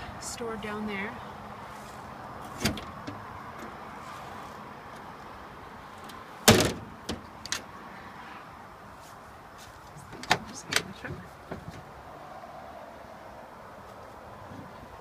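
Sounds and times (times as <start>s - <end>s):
metal door banging shut: 6.4s - 7.3s
metal door latch clicks: 6.5s - 7.6s.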